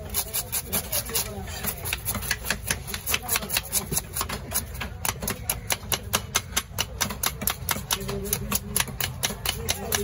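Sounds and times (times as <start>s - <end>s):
knife scraping fish scales: 0.0s - 5.5s.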